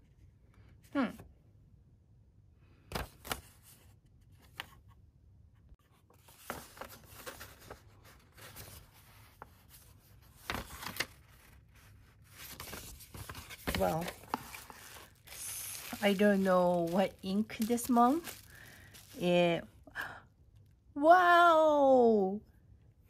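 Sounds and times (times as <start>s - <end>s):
paper card rustling: 5.8s - 19.3s.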